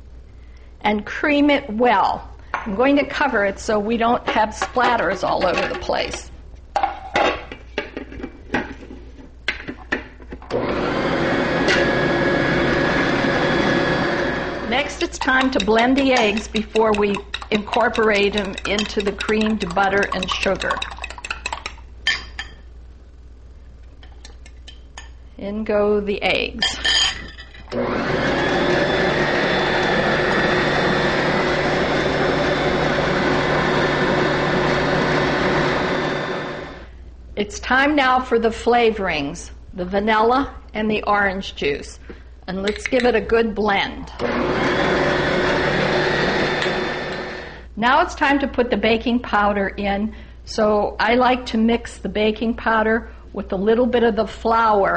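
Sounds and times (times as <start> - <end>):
kitchen mixer motor running: 10.5 - 19.7, 27.7 - 36.9, 44.2 - 47.7.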